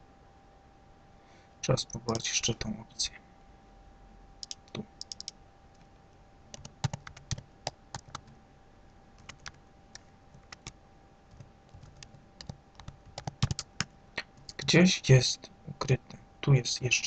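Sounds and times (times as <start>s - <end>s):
faint steady hum: 0.0s - 17.0s
computer keyboard typing: 4.4s - 5.3s, 6.5s - 8.3s, 9.2s - 14.7s.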